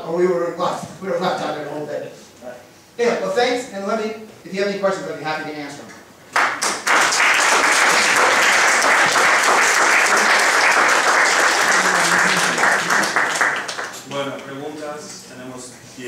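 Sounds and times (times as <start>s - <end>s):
audience applauding: 6.3s - 14.3s.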